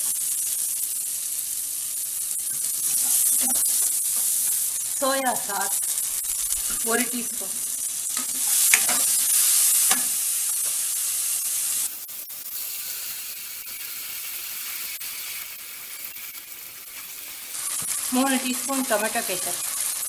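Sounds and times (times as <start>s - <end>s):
vegetables sizzling in oil: 0.0s - 20.0s
spatula scraping pan: 2.5s - 4.7s, 8.1s - 10.2s.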